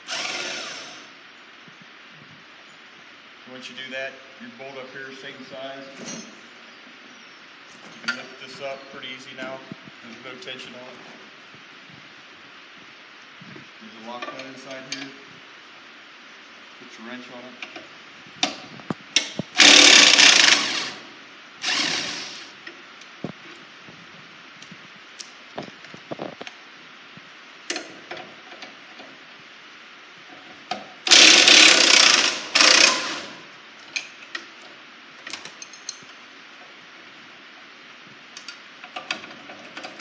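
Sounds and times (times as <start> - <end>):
metal parts clicking and clanking: 35.2 - 36.2.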